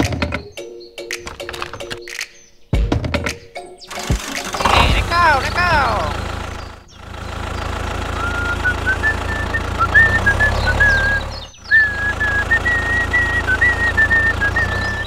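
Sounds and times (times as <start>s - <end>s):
tractor engine running: 3.9s - 15.0s
person whistling a tune: 8.2s - 15.0s.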